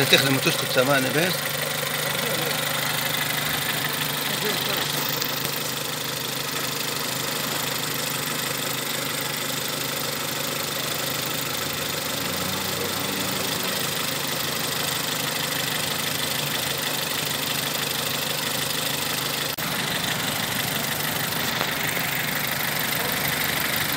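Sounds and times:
car engine idling: 0.0s - 23.9s.

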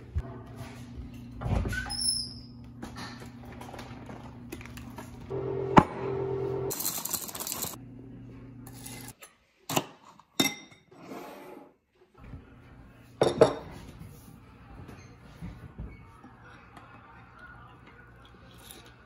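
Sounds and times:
steady low hum: 2.5s - 6.8s.

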